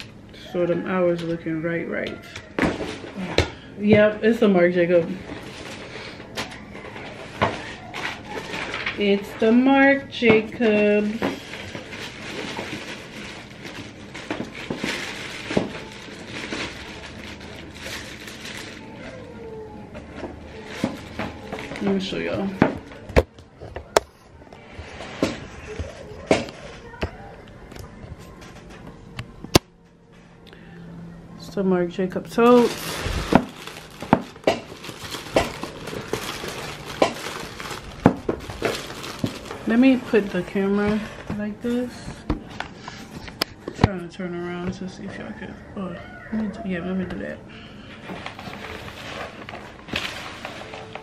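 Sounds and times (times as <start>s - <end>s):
plastic packaging crinkling: 5.1s - 9.8s, 10.6s - 19.4s, 20.0s - 23.1s, 32.3s - 42.0s, 48.0s - 51.0s
cardboard rustling and scraping: 32.4s - 43.4s, 48.0s - 51.0s.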